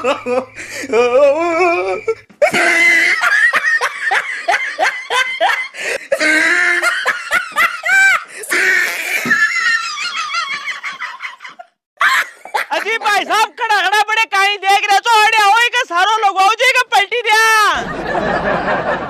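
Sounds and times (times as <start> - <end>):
high-pitched laughter: 1.5 - 13.2.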